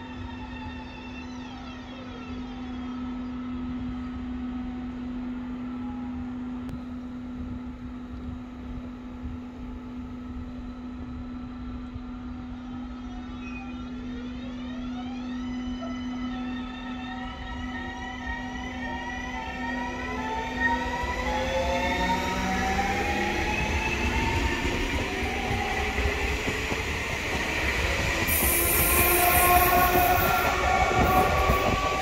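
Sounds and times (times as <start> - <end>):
electric train motor whine: 6.7 - 32.0.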